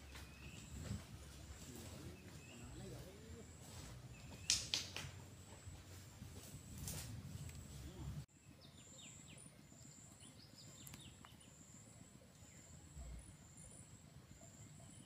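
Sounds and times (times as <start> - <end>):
bird chirps: 0.0 - 4.8, 8.4 - 15.0.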